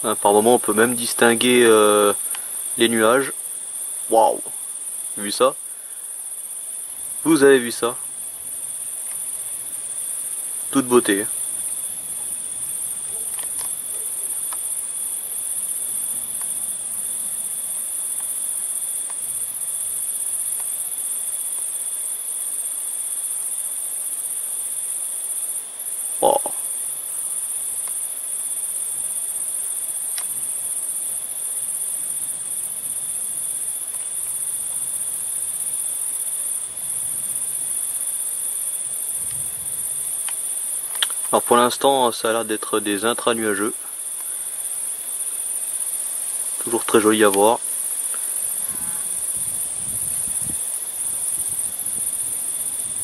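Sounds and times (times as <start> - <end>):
crickets trilling: 0.0 - 53.0
lower steady trill: 46.6 - 50.3.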